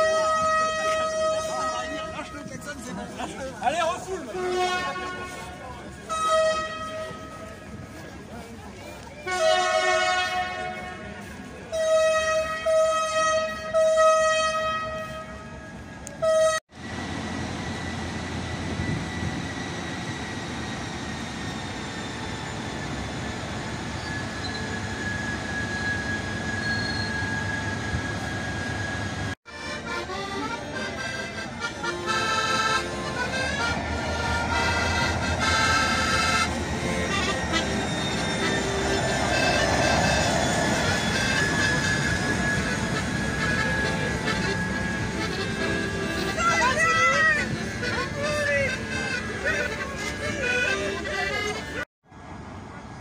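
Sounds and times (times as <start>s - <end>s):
locomotive horn blasts: 0.0s - 2.6s, 4.0s - 7.9s, 9.2s - 16.7s, 29.5s - 51.8s
diesel engine running: 16.7s - 27.1s, 27.8s - 51.8s.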